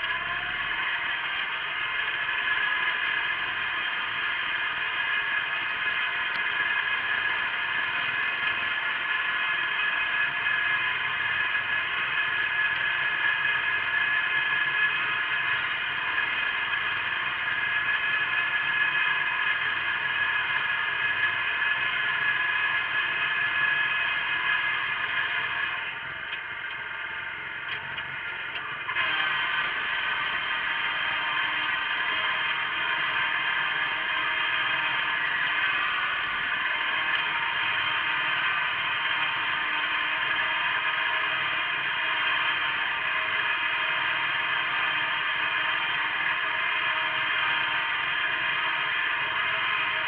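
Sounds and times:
garden tractor engine droning: 0.0 - 50.0.

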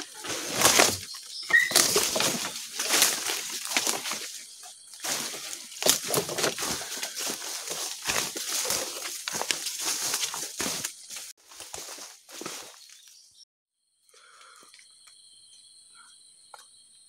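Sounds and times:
leaves and stems brushing: 0.0 - 13.1
footsteps crunching on dry leaves: 0.0 - 13.4.

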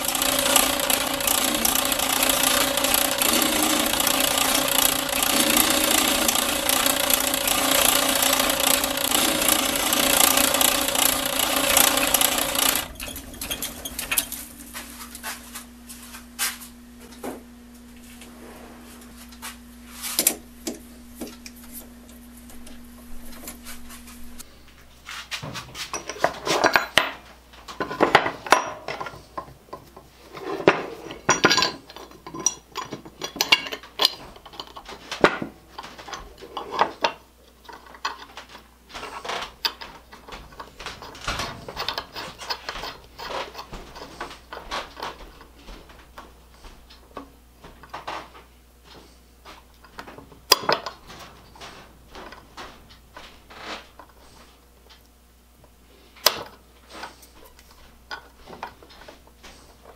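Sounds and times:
metal vise parts clinking: 10.8 - 14.5, 30.4 - 34.9.

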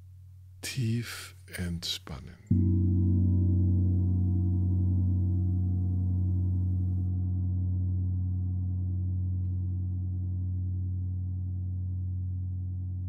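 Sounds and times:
gong ringing: 2.5 - 10.8.

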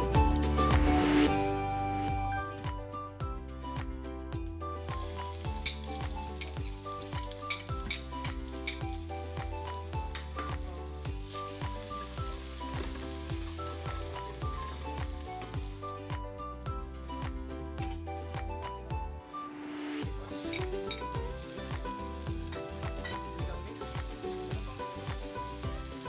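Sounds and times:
background music with a beat: 0.0 - 26.0
garlic sizzling in hot oil: 4.9 - 16.2, 20.0 - 26.0.

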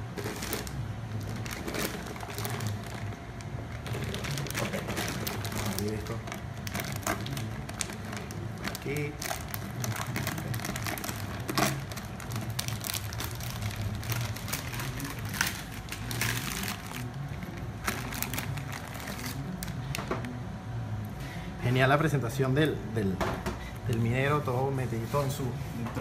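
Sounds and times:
plastic bag crinkling: 0.0 - 20.0.

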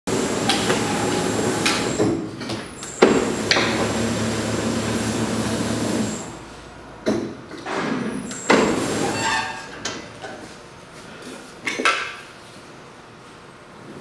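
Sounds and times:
machine hum: 0.1 - 2.2, 2.8 - 7.0.

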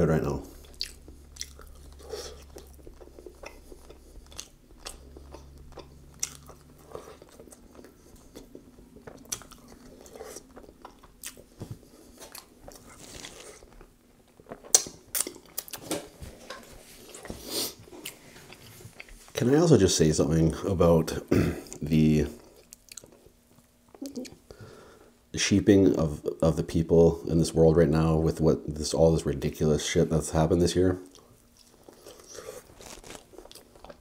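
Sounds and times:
person chewing wetly: 0.5 - 15.8, 22.4 - 23.3, 31.0 - 34.0.

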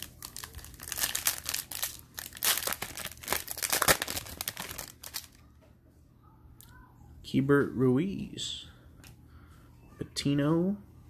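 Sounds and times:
foil wrapper crinkling and tearing: 0.0 - 5.4.

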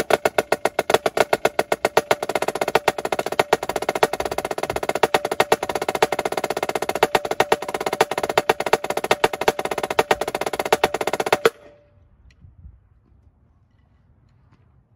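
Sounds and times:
snare drum rolls and strokes: 0.0 - 11.8.

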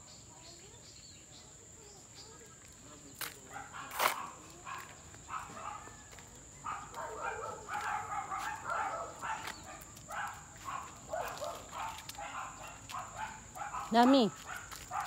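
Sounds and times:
dogs barking: 3.4 - 15.0.

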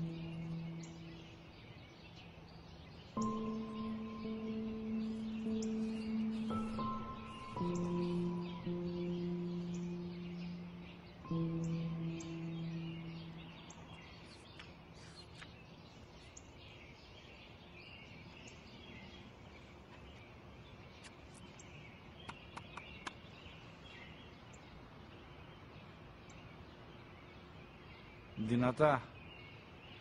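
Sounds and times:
small birds chirping: 0.0 - 30.0
low held musical note: 3.2 - 14.3.

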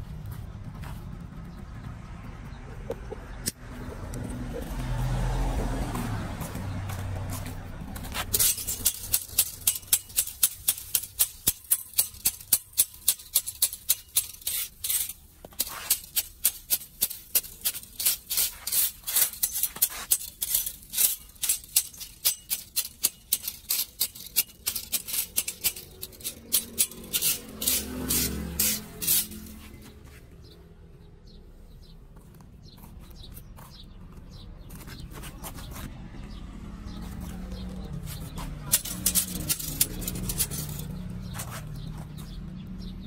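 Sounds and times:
metal tool scraping grate: 8.0 - 30.2, 37.6 - 42.3.

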